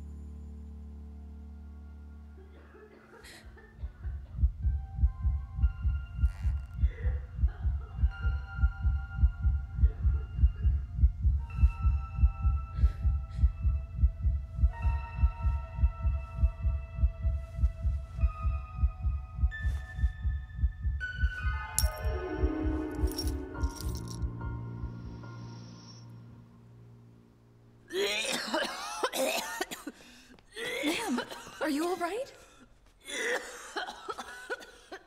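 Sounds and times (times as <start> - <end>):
deep heartbeat-like throb: 3.7 - 22.9.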